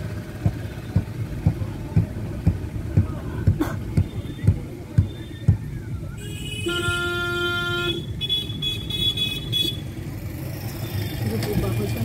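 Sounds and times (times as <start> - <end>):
vehicle driving rumble: 0.0 - 12.0
vehicle horn honking: 6.2 - 9.8.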